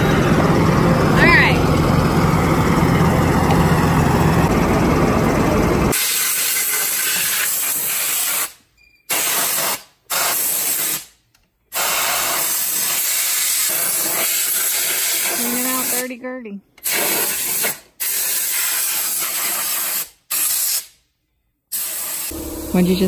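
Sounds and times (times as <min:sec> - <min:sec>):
engine humming: 0:00.0 - 0:06.0, 0:15.2 - 0:16.8, 0:22.3 - 0:23.0.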